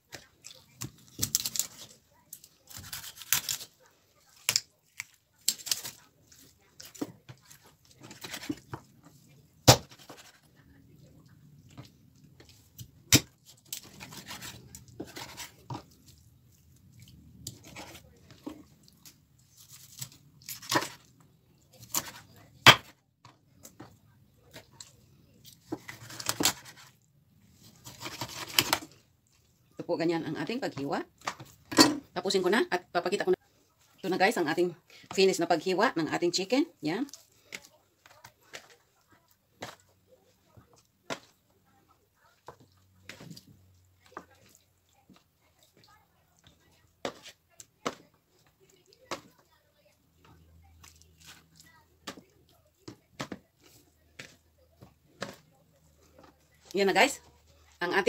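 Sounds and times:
knife tearing raw meat: 0.4 - 3.7.

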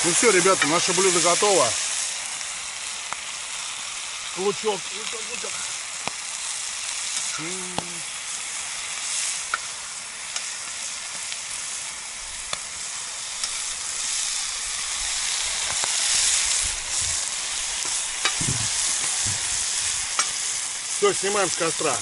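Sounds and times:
food sizzling in a pan: 0.0 - 22.0.

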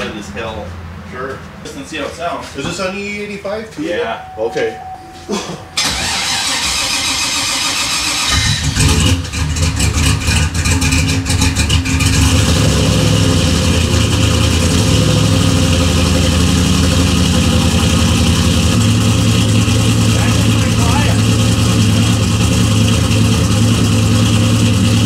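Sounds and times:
car engine starting and idling: 4.2 - 25.0.

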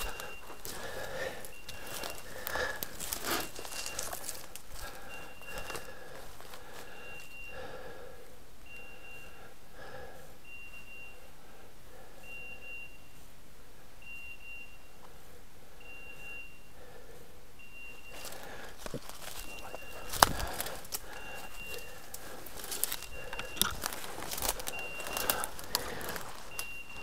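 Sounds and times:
footsteps on dry leaves: 0.0 - 7.0, 18.1 - 27.0
high electronic beeps: 19.4 - 22.2, 22.8 - 27.0.

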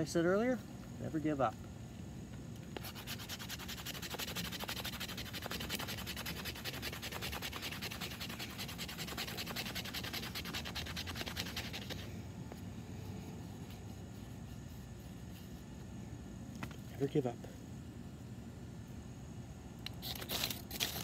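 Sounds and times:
knife scraping wood: 2.7 - 12.1, 19.9 - 21.0.

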